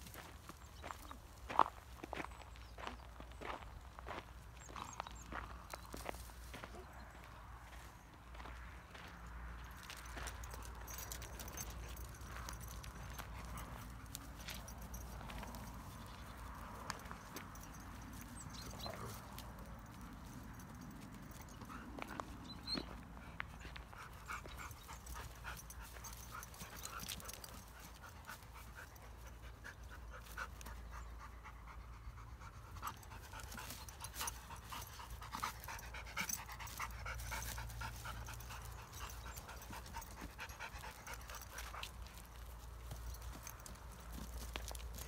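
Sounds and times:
dogs panting: 7.8s - 45.0s
ticks and scuffs of movement: 9.4s - 22.4s, 32.6s - 45.0s.

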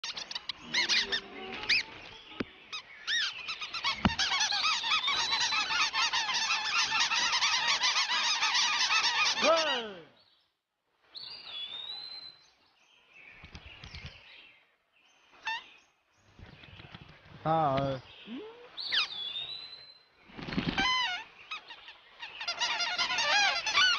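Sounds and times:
cartoon birds squawking and chirping: 0.0s - 2.0s, 2.7s - 10.0s, 20.5s - 23.9s.

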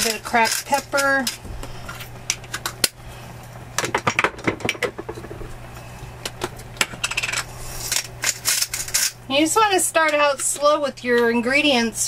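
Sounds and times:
spice grinder clicking and crunching: 0.0s - 3.0s, 6.4s - 9.2s.

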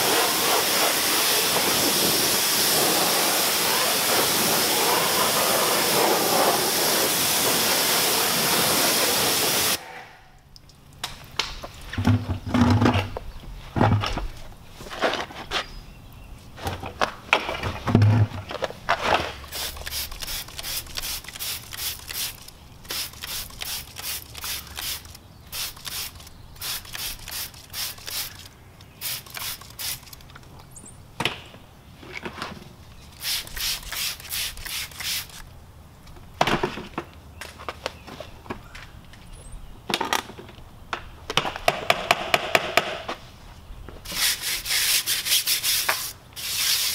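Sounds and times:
brush scrubbing wet wheel: 0.0s - 9.8s, 19.4s - 30.1s, 44.1s - 46.9s.

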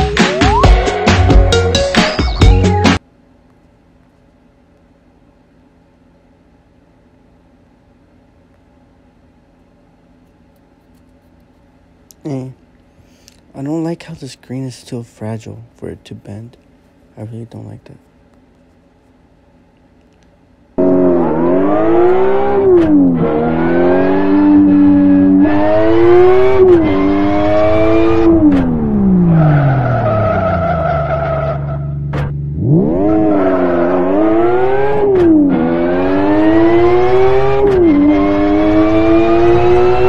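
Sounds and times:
game car engine revving: 20.8s - 40.0s.

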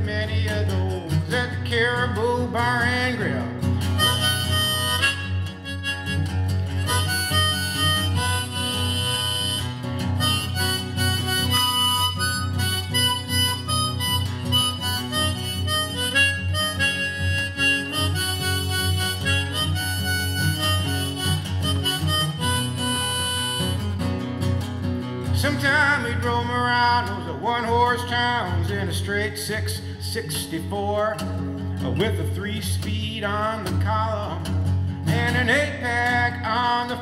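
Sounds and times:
strummed acoustic guitar: 0.0s - 37.0s
harmonica solo: 3.8s - 24.5s.

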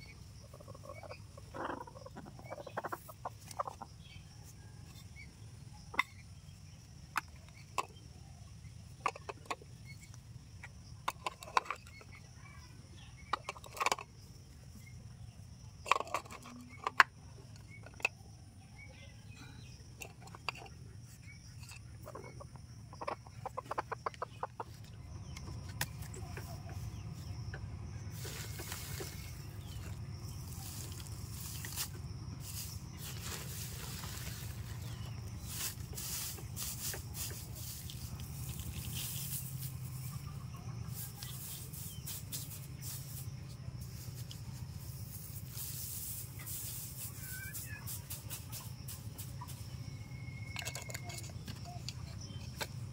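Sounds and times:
hen clucking: 0.0s - 4.1s, 20.3s - 30.0s.

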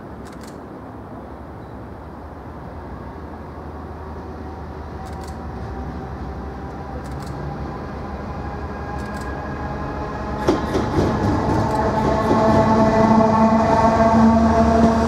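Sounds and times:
diesel locomotive engine: 0.0s - 15.0s
wheels knocking over rail joints: 10.4s - 12.6s.

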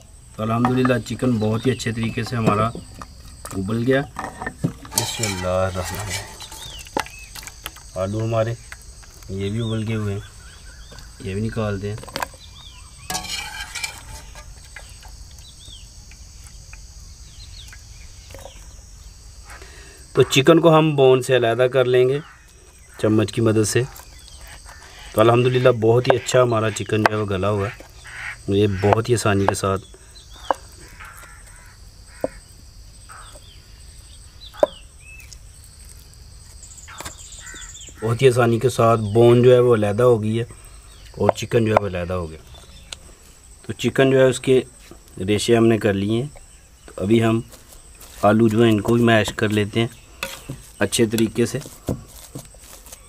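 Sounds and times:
crickets chirring: 0.0s - 53.0s
spatula scraping: 2.1s - 7.6s, 13.0s - 15.1s, 47.4s - 53.0s
dishware clatter: 4.1s - 6.8s, 13.1s - 14.5s
bird chirps: 5.0s - 21.0s, 23.8s - 35.4s, 36.6s - 39.5s.

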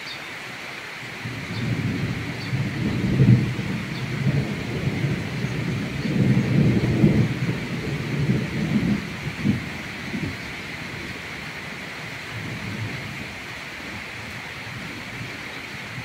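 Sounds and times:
rain hissing: 0.0s - 16.0s.

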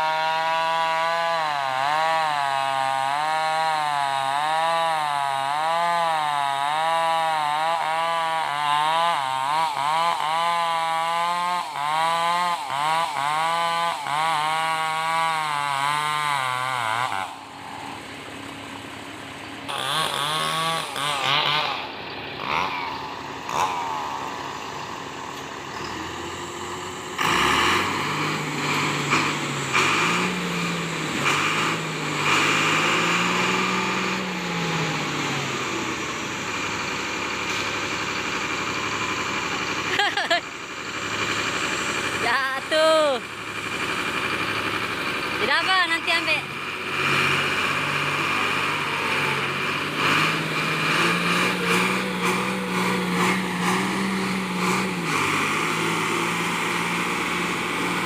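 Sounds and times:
bulldozer diesel engine running: 0.0s - 58.0s
chainsaw cutting log: 0.0s - 58.0s.

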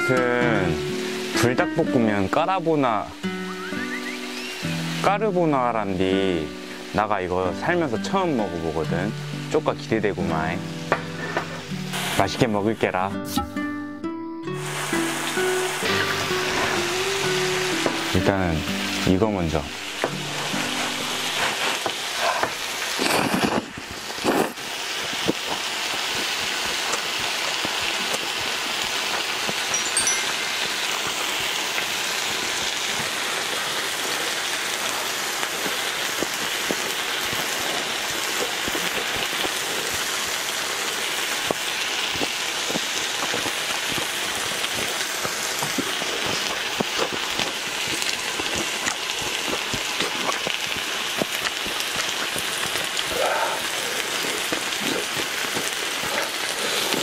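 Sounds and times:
food sizzling on a grill pan: 0.0s - 13.0s, 14.6s - 57.0s
noodles being slurped: 20.6s - 24.6s, 45.6s - 57.0s.

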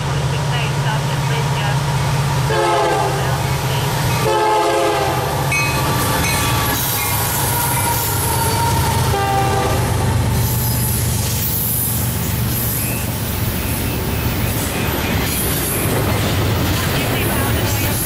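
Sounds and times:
train wheels on rails: 0.0s - 18.0s
locomotive horn chord: 2.5s - 3.5s, 4.2s - 5.7s, 7.0s - 10.0s.

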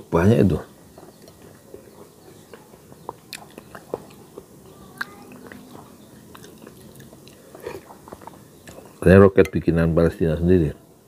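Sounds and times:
chewing: 1.0s - 9.0s.

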